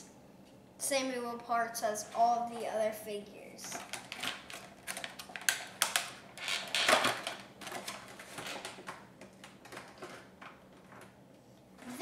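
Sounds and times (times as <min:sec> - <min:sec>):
plastic packaging crinkling: 0:03.7 - 0:11.2.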